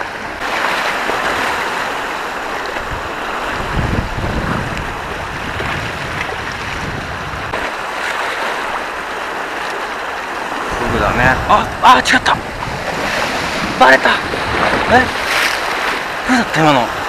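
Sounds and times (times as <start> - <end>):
sea surf washing on shore: 0.0 - 17.0
wind rumble on microphone: 2.6 - 7.7, 10.5 - 16.2.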